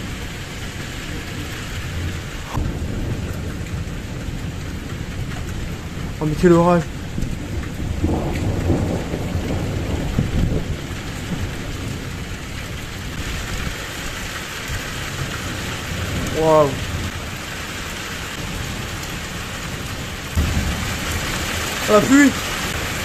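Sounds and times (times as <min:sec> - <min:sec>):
heavy rain downpour: 0:00.0 - 0:23.0
thunder rumbling: 0:00.0 - 0:23.0
person exclaiming: 0:16.3 - 0:16.8, 0:21.8 - 0:22.4.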